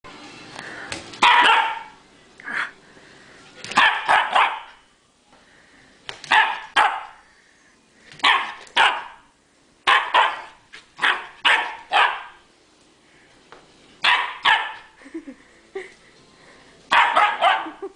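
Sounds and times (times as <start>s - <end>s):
puppy barking: 1.2s - 2.0s, 3.7s - 4.8s, 6.3s - 7.2s, 8.2s - 12.4s, 14.0s - 15.0s, 16.9s - 17.8s.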